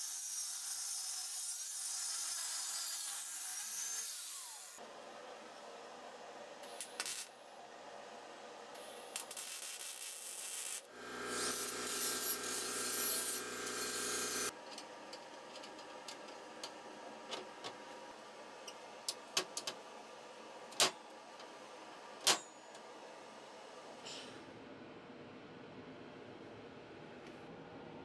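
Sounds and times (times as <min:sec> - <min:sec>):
angle grinder sanding steel: 0:10.4 - 0:14.5.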